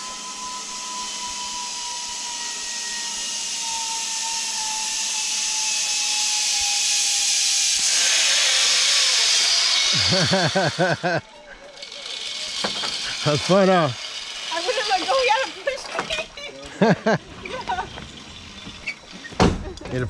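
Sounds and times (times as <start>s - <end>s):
zip line pulleys whirring: 0.0s - 20.0s.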